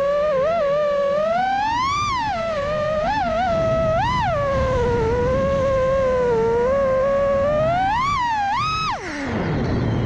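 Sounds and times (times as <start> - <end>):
quadcopter motors whining: 0.0 - 10.0.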